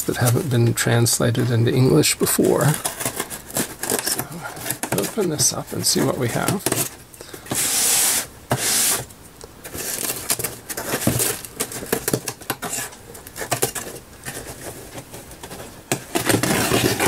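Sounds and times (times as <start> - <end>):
utility knife cutting tape on cardboard: 7.5 - 9.0.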